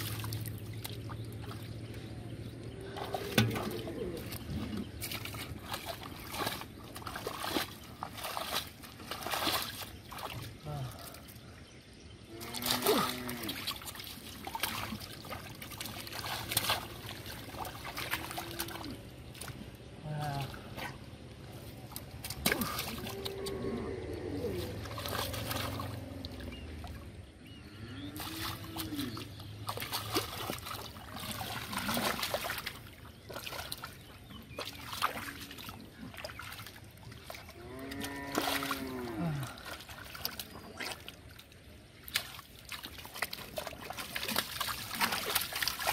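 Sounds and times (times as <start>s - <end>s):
water splashing and sloshing: 0.0s - 45.9s
short wordless voice sounds: 10.6s - 11.3s, 20.0s - 21.0s.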